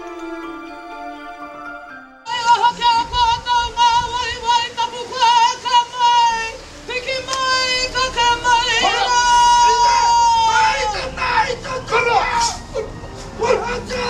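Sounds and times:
woman's ceremonial call: 0:02.3 - 0:11.1.

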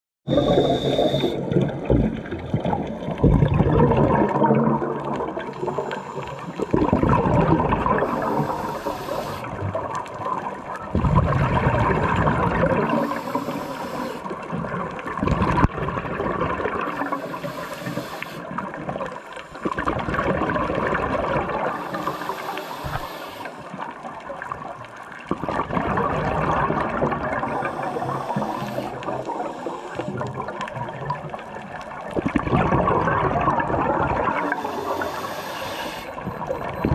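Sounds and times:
regulator inhale hiss: 0:00.3 - 0:01.6, 0:05.5 - 0:06.7, 0:08.0 - 0:09.6, 0:12.8 - 0:14.4, 0:16.9 - 0:19.9, 0:21.6 - 0:23.8, 0:27.4 - 0:30.3, 0:34.3 - 0:36.4
exhaled bubbles rushing: 0:00.3 - 0:36.9.

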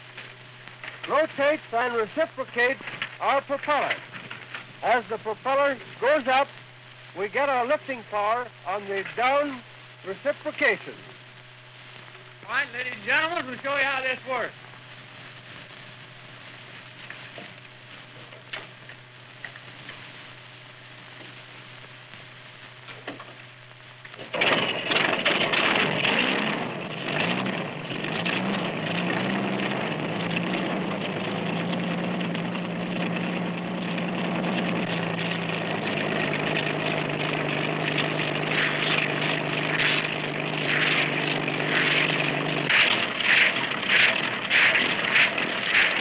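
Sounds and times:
helicopter engine running: 0:24.4 - 0:46.0.

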